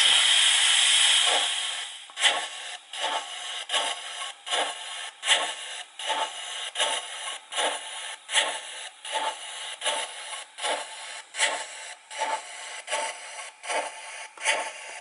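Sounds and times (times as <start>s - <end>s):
soft steam hiss: 0.0s - 6.4s
model steam locomotive chuffs: 0.0s - 15.0s.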